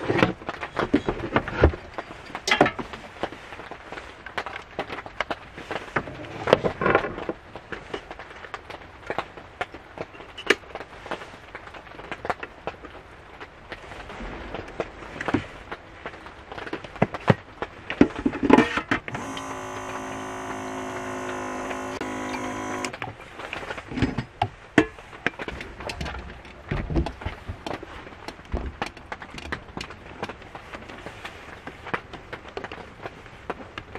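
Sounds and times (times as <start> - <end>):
steady multi-tone hum: 19.1 - 23.0.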